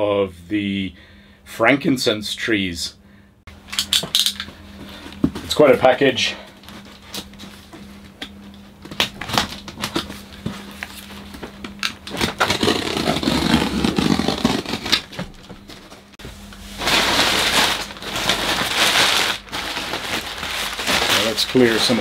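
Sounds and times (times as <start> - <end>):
packing tape being snipped: 11.7 - 15.2
scraping on tape and cardboard: 12.1 - 15.3
crumpled newspaper rustling: 16.7 - 22.0.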